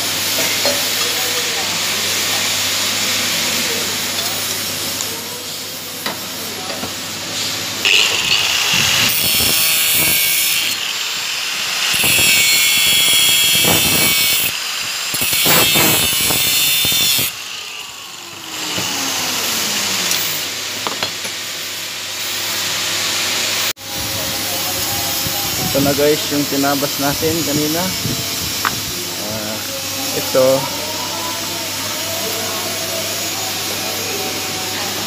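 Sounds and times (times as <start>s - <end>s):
power tool cutting metal: 7.4s - 23.7s, 24.4s - 35.0s.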